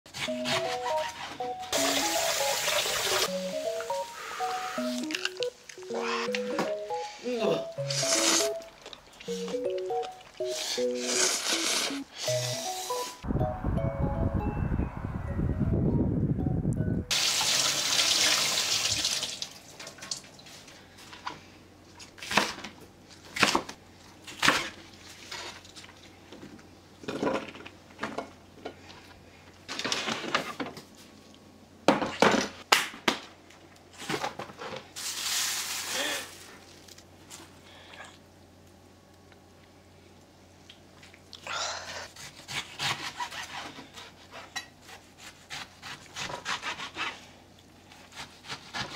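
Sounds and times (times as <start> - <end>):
running tap water: 1.8 - 3.3, 17.1 - 20.4.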